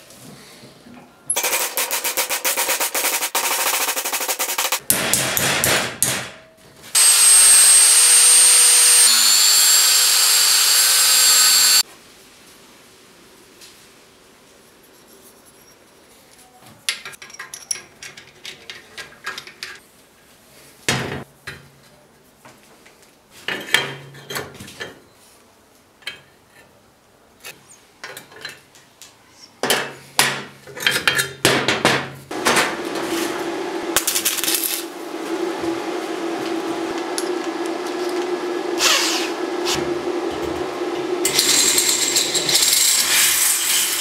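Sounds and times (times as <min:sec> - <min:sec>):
continuous mechanical sound: 0:01.3 - 0:11.8, 0:32.3 - 0:44.0.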